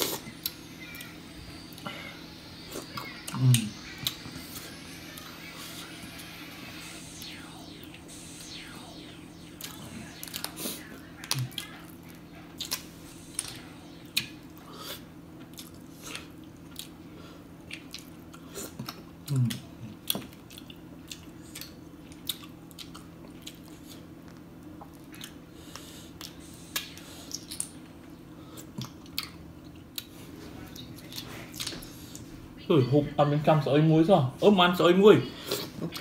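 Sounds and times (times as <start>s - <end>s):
steady low hum: 0.0s - 36.0s
chewing and lip smacks: 11.2s - 13.5s, 15.4s - 17.0s, 17.6s - 27.8s, 28.6s - 30.1s, 30.7s - 32.3s.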